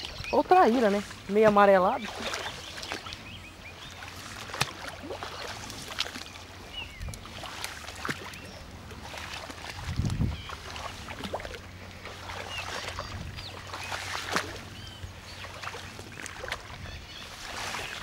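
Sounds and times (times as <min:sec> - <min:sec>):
small water sounds: 0:00.0 - 0:18.0
wind rumble on microphone: 0:00.0 - 0:18.0.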